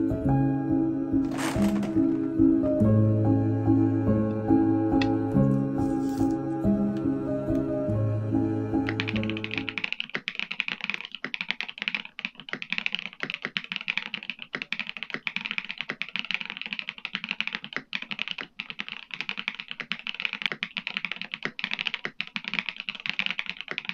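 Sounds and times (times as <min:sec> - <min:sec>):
mechanical keyboard typing: 0:08.9 - 0:23.9.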